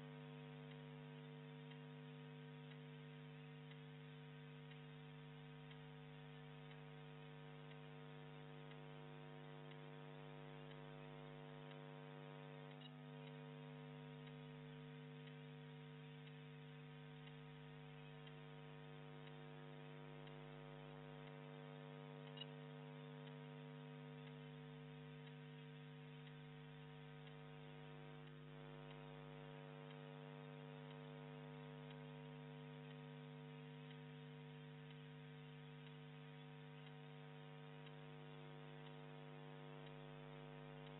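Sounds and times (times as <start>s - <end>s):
faint mains hum: 0.0s - 40.9s
faint click: 12.6s - 13.4s, 22.2s - 22.6s.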